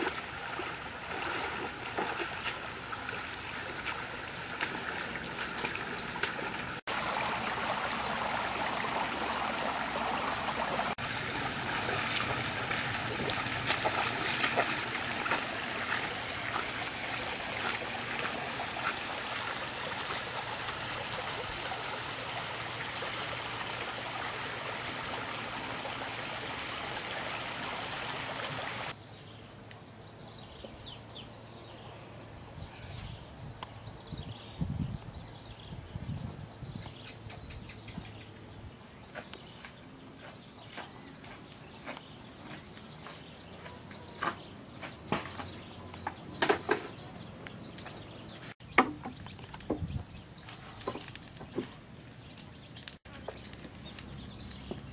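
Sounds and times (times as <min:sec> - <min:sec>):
person wading through stream: 0:00.0 - 0:29.0.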